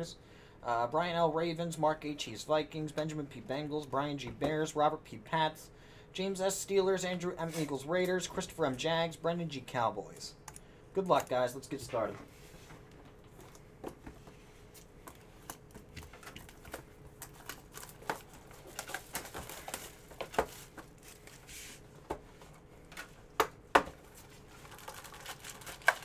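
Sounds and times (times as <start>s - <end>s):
cardboard and plastic packaging rustling: 11.1s - 26.0s.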